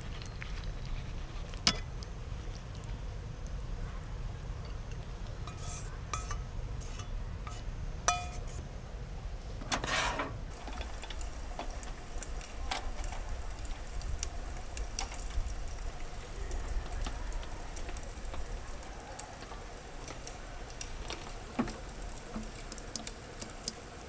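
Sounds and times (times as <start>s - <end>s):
cookware clinking and scraping: 5.5s - 8.6s, 9.7s - 10.4s
wok scraping clatter: 5.5s - 8.6s, 9.7s - 12.2s.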